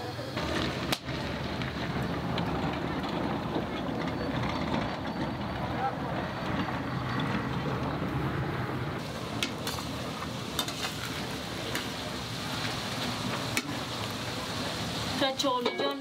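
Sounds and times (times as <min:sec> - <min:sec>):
low rumble: 0:00.4 - 0:09.3
food sizzling in a pan: 0:09.0 - 0:16.0.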